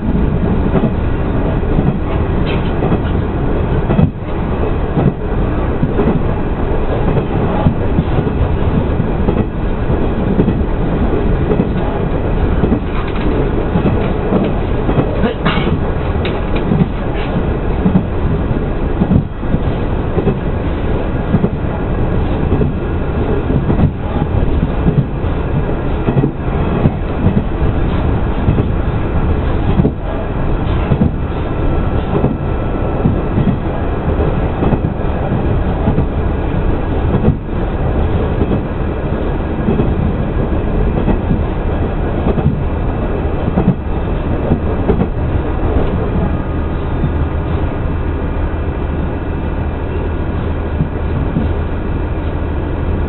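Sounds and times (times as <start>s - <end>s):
train wheels rumbling on rail: 0.0s - 53.0s
wheels clacking over rail joints: 10.4s - 18.1s.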